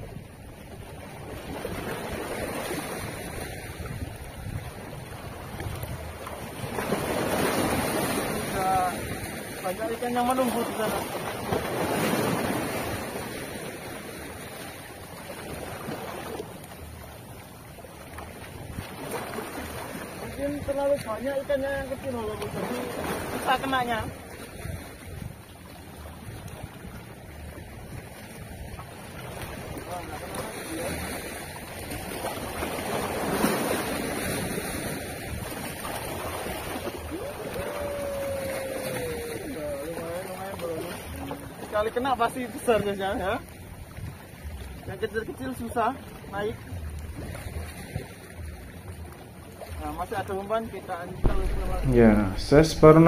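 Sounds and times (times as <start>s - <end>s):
waves washing against rocks: 0.7s - 17.4s, 18.0s - 25.4s, 27.8s - 44.2s, 49.8s - 53.0s
rising pitched tone: 51.3s - 53.0s.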